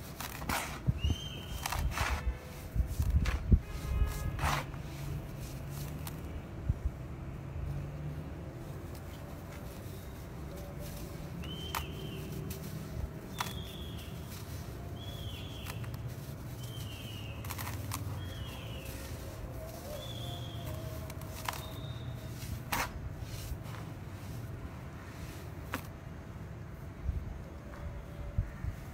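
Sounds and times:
bird chirping: 1.0 - 1.9, 9.8 - 22.4.

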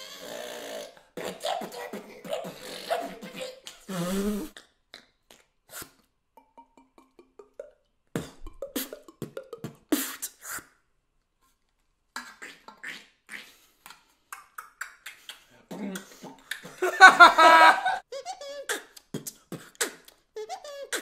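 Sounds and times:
beatboxing clicks and pops: 4.5 - 10.7, 12.2 - 16.8, 18.7 - 21.0
beatboxing pulsing buzz: 8.2 - 10.4.

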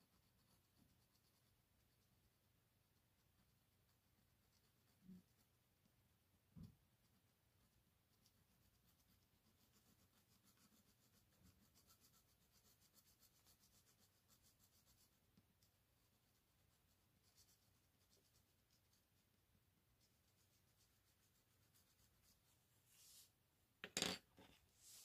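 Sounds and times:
pencil scratching on paper: 0.0 - 2.3, 2.9 - 5.6, 6.9 - 19.2, 20.0 - 23.3.

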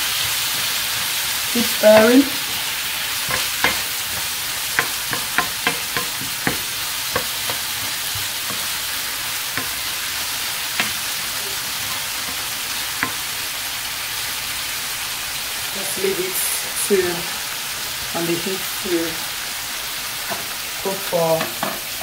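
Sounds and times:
vegetables sizzling in oil: 0.0 - 22.0
spatula tapping and scraping pan: 0.1 - 13.4, 21.4 - 21.9.

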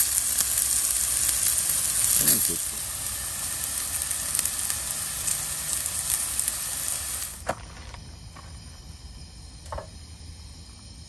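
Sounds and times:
onions sizzling in oil: 0.0 - 7.6.

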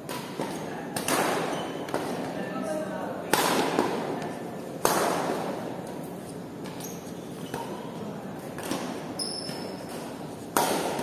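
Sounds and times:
shoes squeaking on court floor: 1.4 - 2.0, 6.1 - 8.0, 8.8 - 10.5
shuttlecock struck by rackets: 3.3 - 4.1, 8.6 - 11.0.

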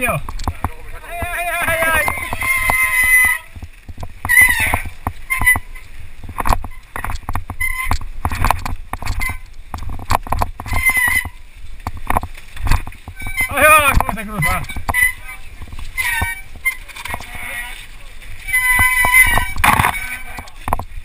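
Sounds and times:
brakes squealing: 0.0 - 3.6, 4.2 - 8.4, 10.6 - 11.5, 13.0 - 20.6
mountain bike rattling over rocks: 0.0 - 21.0.

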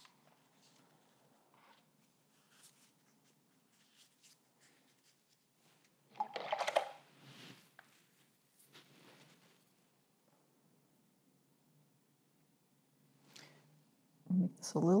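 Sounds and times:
paper towel rubbing and rustling: 7.1 - 9.9.

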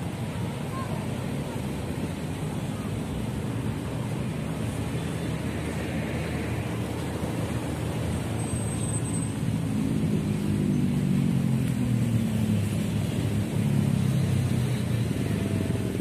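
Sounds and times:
low traffic rumble: 0.0 - 16.0.

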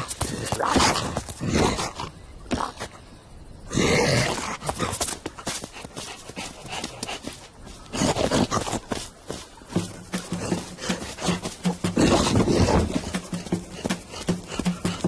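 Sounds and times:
cartoon panting and grunting: 9.8 - 15.0.

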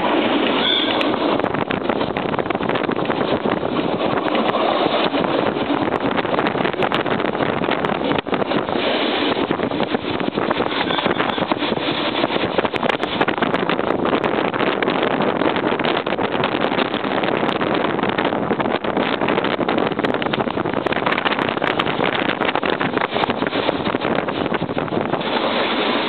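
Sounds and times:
train rattling: 0.0 - 26.0
wind rushing over microphone: 0.0 - 26.0.

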